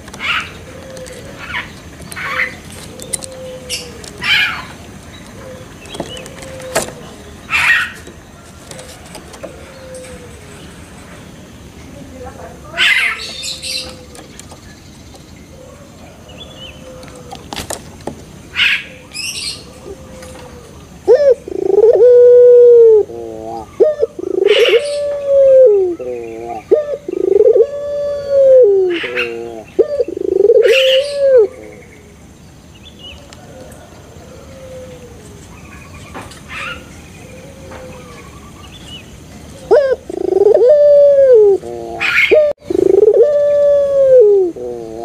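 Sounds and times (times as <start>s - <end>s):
dove cooing: 0.0s - 10.6s, 12.7s - 14.4s, 15.5s - 17.8s, 18.5s - 32.1s, 33.2s - 35.3s, 36.5s - 38.5s, 39.5s - 45.0s
dove rolling trill: 0.0s - 10.8s, 18.5s - 32.1s, 39.2s - 45.0s.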